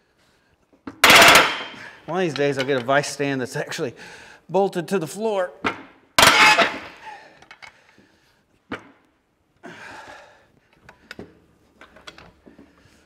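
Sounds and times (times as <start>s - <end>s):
sharp metal clank: 1.0s - 2.0s, 6.2s - 7.0s
heavy breath of effort: 4.0s - 4.5s, 9.6s - 11.2s.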